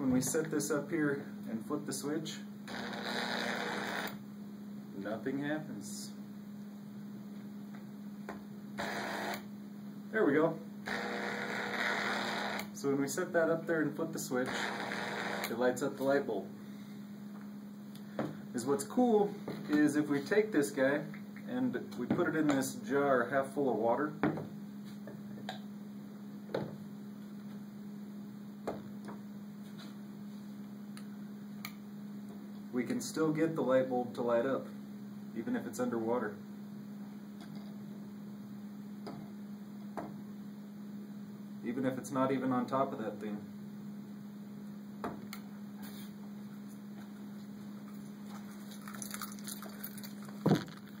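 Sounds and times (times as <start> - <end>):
electrical coil hum: 0.0 - 51.0
induction coil humming: 8.2 - 16.7.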